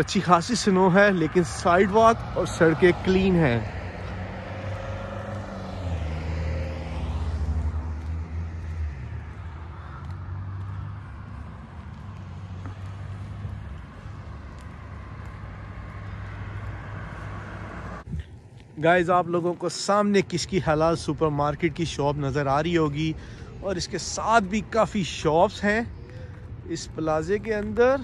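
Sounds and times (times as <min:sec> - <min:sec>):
car passing by: 0:00.0 - 0:18.3
low traffic hum: 0:00.0 - 0:28.0.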